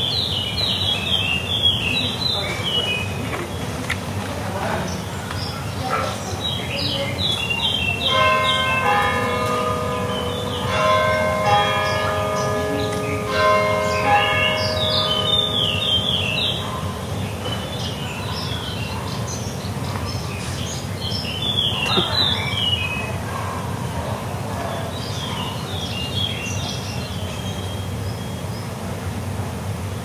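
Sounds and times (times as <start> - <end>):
bird chirping: 0.0 - 3.7, 10.1 - 23.2
church bell striking: 7.9 - 17.6.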